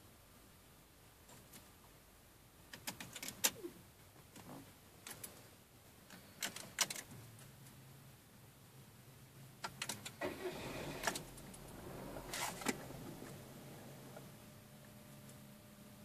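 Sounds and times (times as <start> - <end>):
low electrical hum: 0.0 - 16.0
rustling: 10.1 - 14.5.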